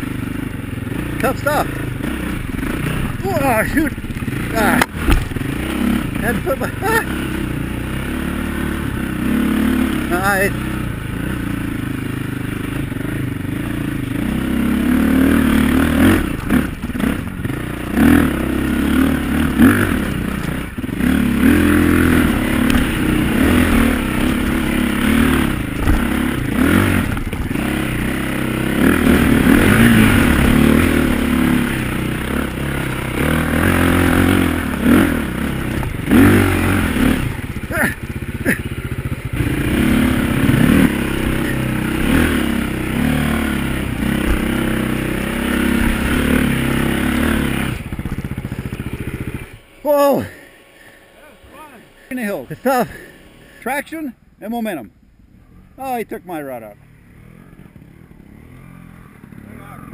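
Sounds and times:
dirt bike engine revving: 0.0s - 59.9s
bike striking roots and rocks: 4.8s - 5.5s, 25.6s - 27.9s, 43.8s - 45.0s.

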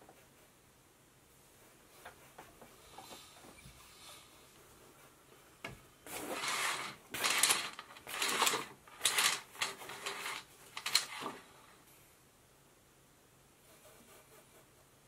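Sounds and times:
curtain runners sliding on rail: 6.1s - 11.5s.

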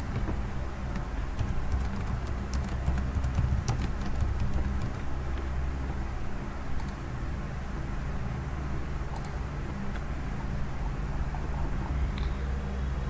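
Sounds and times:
keyboard keys clicking: 0.0s - 5.1s, 9.1s - 9.4s
steady low hum: 0.0s - 13.0s.

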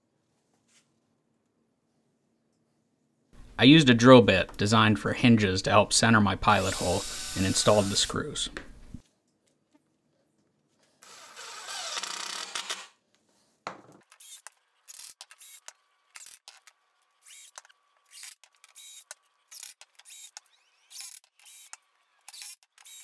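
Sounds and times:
cordless drill running under load: 6.6s - 8.1s, 11.0s - 12.9s
short drill whirring spurts: 6.6s - 8.2s, 11.0s - 12.9s.

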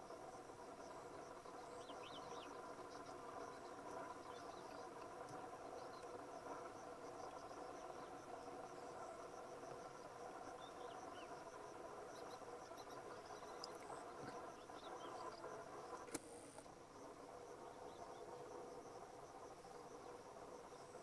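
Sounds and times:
insects trilling: 0.0s - 21.0s
sharp click: 16.1s - 16.7s.

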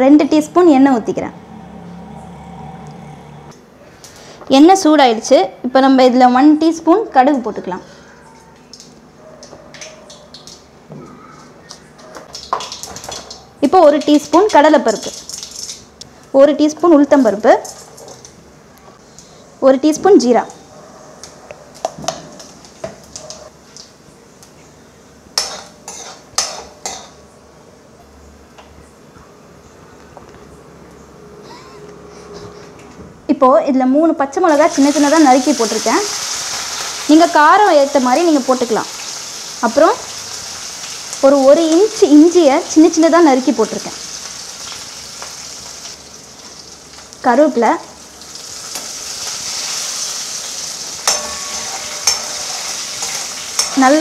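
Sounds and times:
hot oil sizzling in a pan: 12.3s - 13.4s, 34.5s - 54.0s
spoon scraping metal pan: 51.1s - 54.0s.

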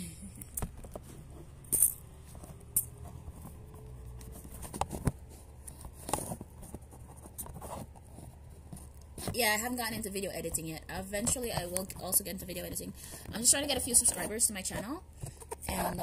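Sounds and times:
camera handling knocks and rustles: 0.6s - 1.5s, 2.2s - 10.1s.

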